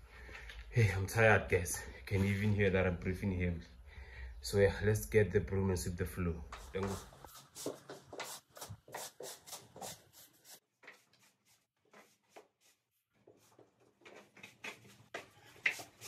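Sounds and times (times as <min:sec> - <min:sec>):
broom sweeping concrete floor: 0:06.5 - 0:13.6.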